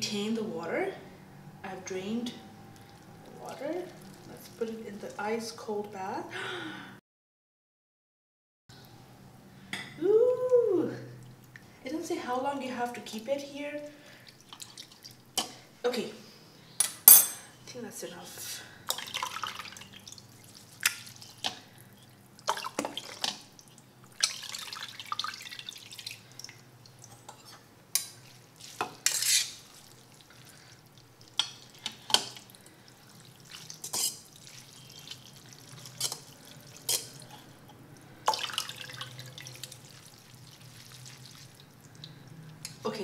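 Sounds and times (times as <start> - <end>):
water sloshing and dripping: 1.6 - 5.4, 13.0 - 15.7, 18.9 - 43.0.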